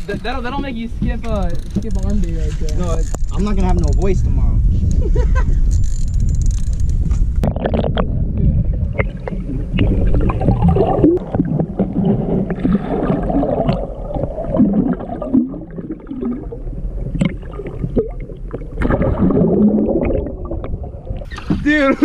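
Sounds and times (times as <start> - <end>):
muffled underwater sloshing: 7.2 - 22.0.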